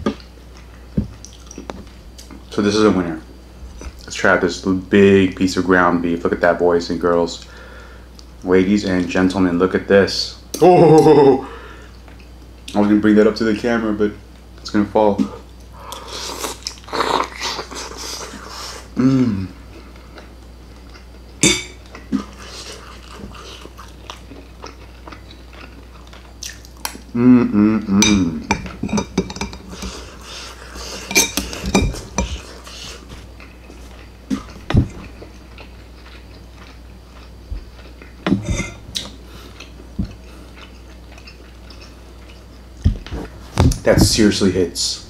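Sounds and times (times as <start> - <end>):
person humming: 10.6 - 11.6, 19.0 - 19.6, 27.1 - 28.5
chewing: 19.8 - 27.0, 29.5 - 43.3
cutlery scraping on plates: 28.0 - 33.1, 38.3 - 38.8.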